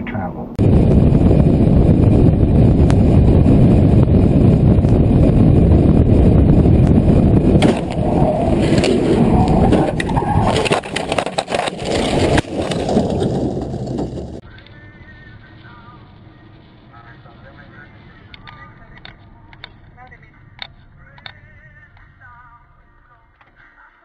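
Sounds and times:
car road and engine noise: 0:00.0 - 0:23.2
car grinding and scraping: 0:05.8 - 0:14.4
car tumbling knocks and bangs: 0:07.4 - 0:14.4.

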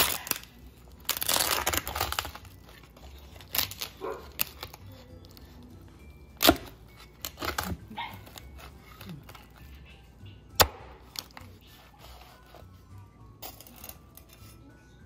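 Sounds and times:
crackling skin crunching: 0:00.0 - 0:05.4, 0:06.4 - 0:09.9.

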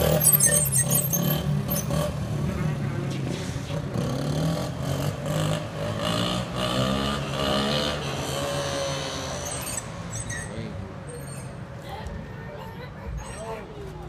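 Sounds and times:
vehicle engine revving: 0:00.0 - 0:10.2.

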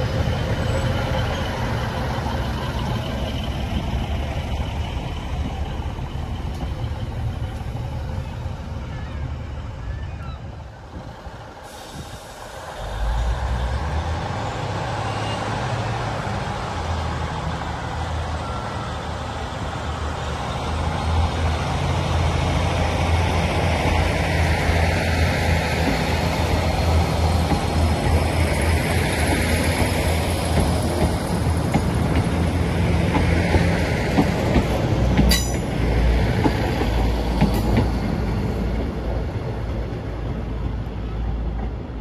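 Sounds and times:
train diesel engine running: 0:00.0 - 0:42.0.

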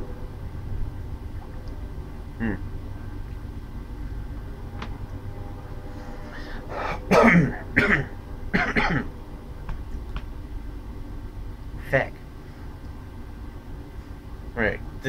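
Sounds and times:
train rumble: 0:00.0 - 0:15.0
man clearing throat and coughing: 0:07.0 - 0:09.1.

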